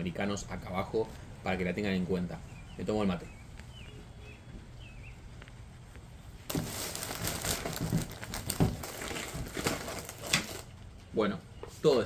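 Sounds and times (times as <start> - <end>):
sharp plastic crackles: 5.4 - 11.1
plastic packaging crinkling: 6.5 - 10.8.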